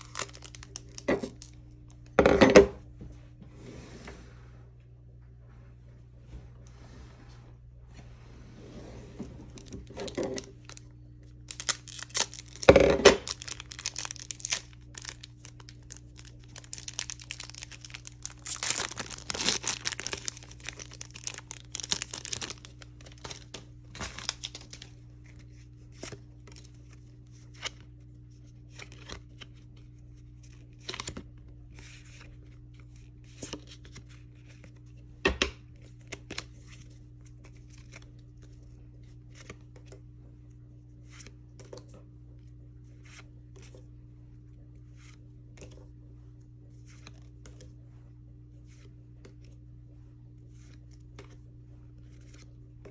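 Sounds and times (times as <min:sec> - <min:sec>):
foil wrapper tearing and crinkling: 0:00.0 - 0:01.6, 0:09.6 - 0:24.9
knife slitting foil pack: 0:11.5 - 0:24.8.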